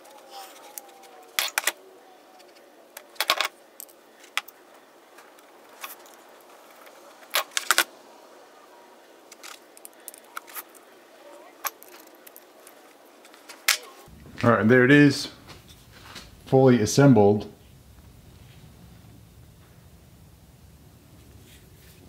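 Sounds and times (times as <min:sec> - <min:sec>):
steel tool parts clinking: 0:00.1 - 0:01.8, 0:11.6 - 0:13.0.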